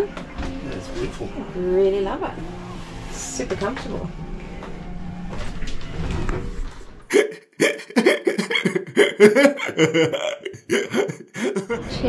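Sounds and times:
short choppy bursts of laughter: 0:07.1 - 0:11.9.

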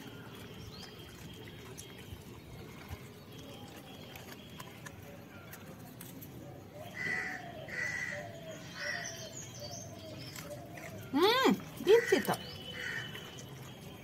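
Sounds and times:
crow cawing: 0:07.0 - 0:08.3.

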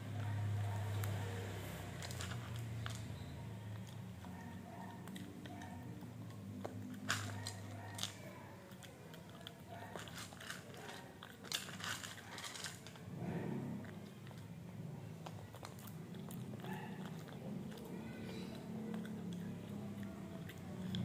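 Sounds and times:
dog crunching dry food: 0:00.2 - 0:21.0.

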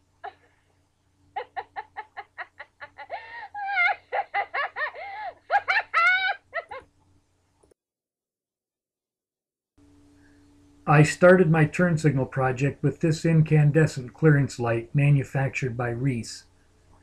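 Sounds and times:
cartoon cackling: 0:01.4 - 0:06.9.

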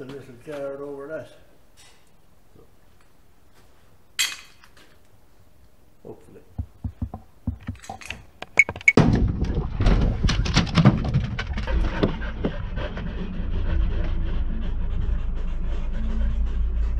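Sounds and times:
short knocks: 0:06.6 - 0:08.1
steady low rumble: 0:11.4 - 0:16.9
dogs panting: 0:11.6 - 0:16.9.

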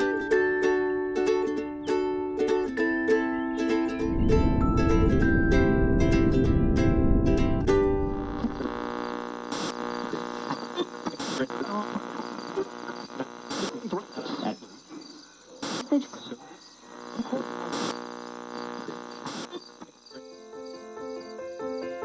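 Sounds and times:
soft piano music: 0:00.4 - 0:08.3, 0:20.2 - 0:22.0
crickets chirping: 0:03.2 - 0:07.1, 0:08.7 - 0:22.0
electrical hum: 0:03.9 - 0:20.2.

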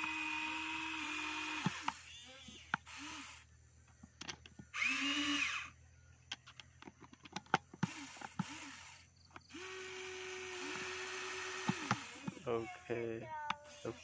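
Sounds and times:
small electric motors whirring: 0:00.0 - 0:14.0.

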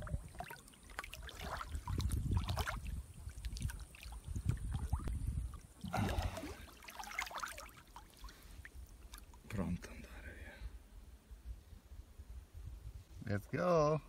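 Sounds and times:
river water sloshing and lapping: 0:00.0 - 0:09.7
water splashing: 0:00.0 - 0:09.7.

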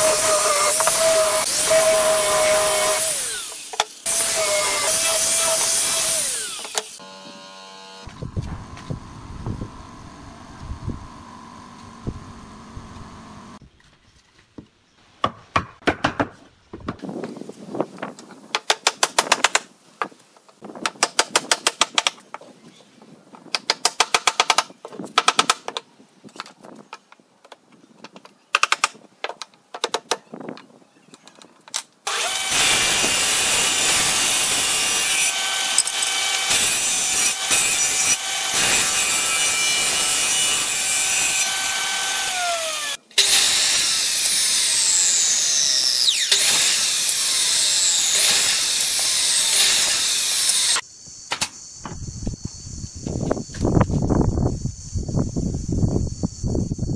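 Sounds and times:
woodworking machine cutting board: 0:00.0 - 0:13.6, 0:32.1 - 0:50.8
power driver driving screws: 0:32.1 - 0:50.8.

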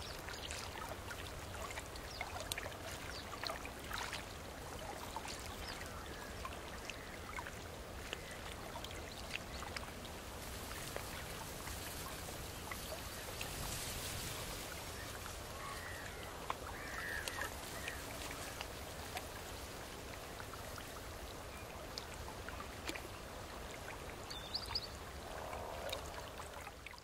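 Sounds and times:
trickling water with drips: 0:00.0 - 0:27.0
bird calls: 0:14.9 - 0:18.6.

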